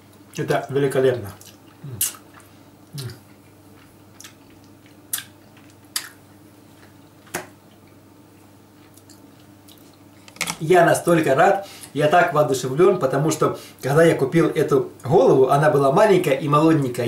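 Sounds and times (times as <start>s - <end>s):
faint steady hum: 0.0s - 17.0s
lip smacks and mouth clicks: 1.4s - 6.2s.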